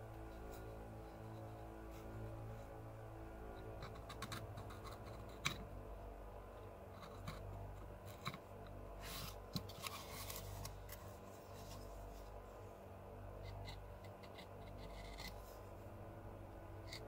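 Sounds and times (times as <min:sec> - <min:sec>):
carving tool scraping: 0:13.4 - 0:15.7.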